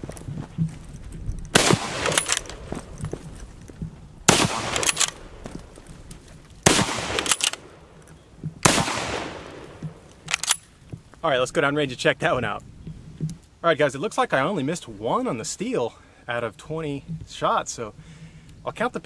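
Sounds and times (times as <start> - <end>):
rifle shots with echo: 1.5 - 2.9, 4.3 - 5.6, 6.6 - 8.0, 8.6 - 10.6.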